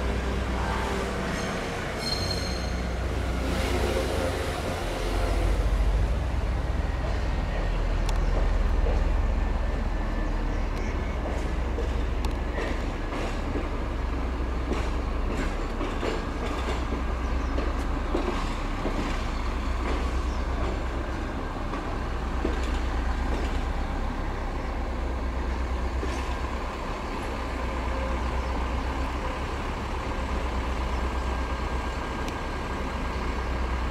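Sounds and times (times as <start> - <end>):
diesel engine humming: 2.7 - 33.9
wheels clicking over rails: 10.8 - 23.9.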